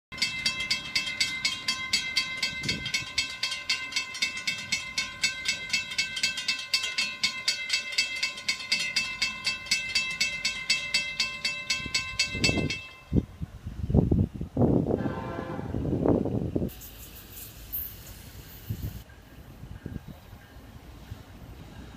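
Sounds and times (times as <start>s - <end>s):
railroad crossing bells ringing: 0.1s - 13.4s, 18.1s - 21.9s.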